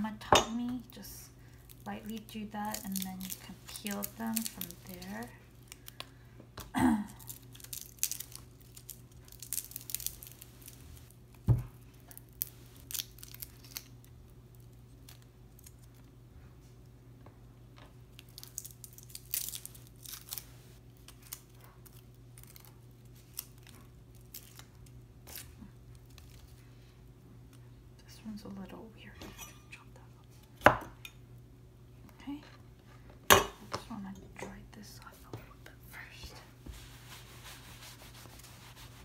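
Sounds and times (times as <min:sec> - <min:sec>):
garlic skins crackling and tearing: 0:01.0 - 0:06.2, 0:07.1 - 0:16.1, 0:18.1 - 0:26.6.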